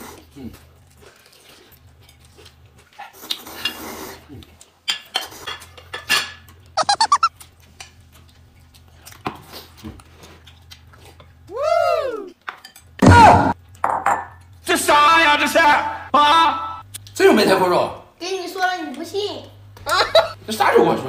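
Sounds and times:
pitched rising and falling sound: 0:06.8 - 0:07.3
short high squeaks: 0:06.8 - 0:07.3.

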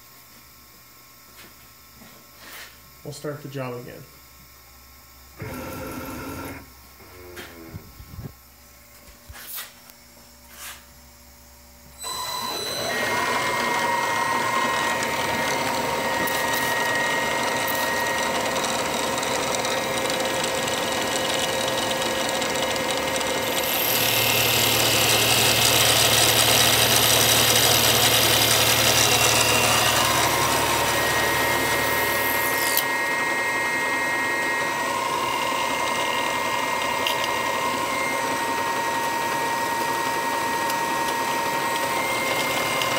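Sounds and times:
milling machine whining: 0:05.4 - 0:08.4, 0:11.9 - 0:42.9
end mill cutting aluminum: 0:12.0 - 0:42.9.

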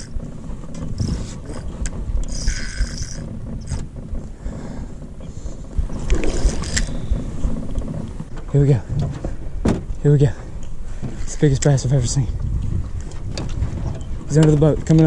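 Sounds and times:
handling rumble: 0:00.0 - 0:15.0
wind buffeting microphone: 0:00.0 - 0:15.0
knocks: 0:09.0 - 0:09.9.

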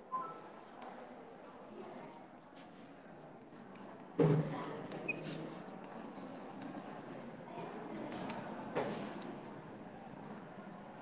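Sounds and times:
chalk scratching on blackboard: 0:02.3 - 0:10.4
chalk tapping: 0:02.4 - 0:10.4.

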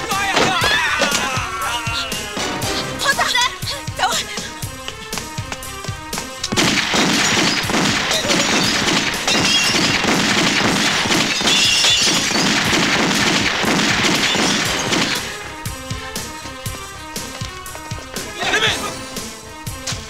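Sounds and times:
action film music: 0:00.0 - 0:20.0
crashes and shattering impacts: 0:06.5 - 0:15.4.

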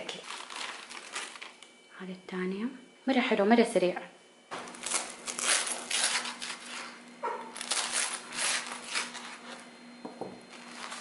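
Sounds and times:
faint steady hum: 0:00.0 - 0:11.0
knife sawing through toasted bread: 0:05.3 - 0:09.6.

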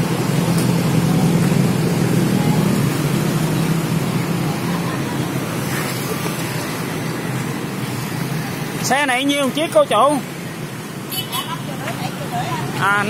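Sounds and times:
engine hum: 0:00.0 - 0:08.9
traffic rumble: 0:00.0 - 0:13.0.

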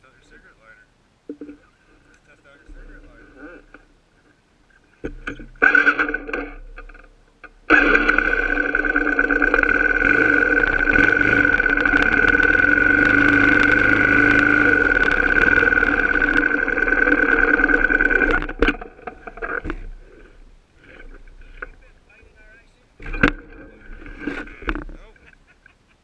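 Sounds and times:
off-road vehicle engine running: 0:05.1 - 0:25.2.

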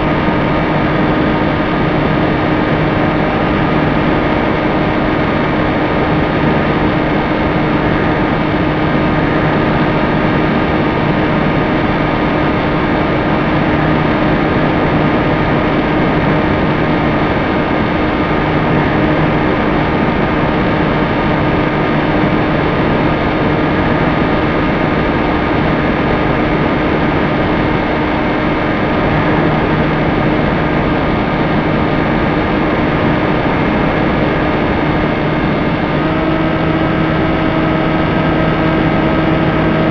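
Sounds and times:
wind noise: 0:00.0 - 0:39.9
electric motor humming: 0:28.2 - 0:39.9.

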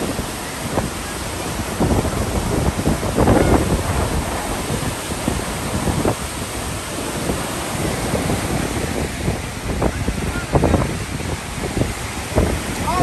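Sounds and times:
waterfall rushing: 0:00.0 - 0:13.0
white-water creek: 0:00.0 - 0:13.0
wind buffeting microphone: 0:00.0 - 0:13.0.

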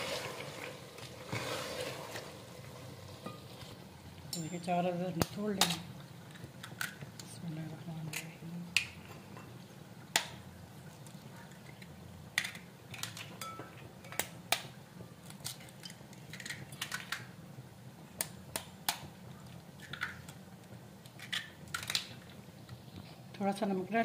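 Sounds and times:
fork clinking on bowl: 0:13.4 - 0:13.7
eggshells cracking on fork: 0:14.1 - 0:17.3.

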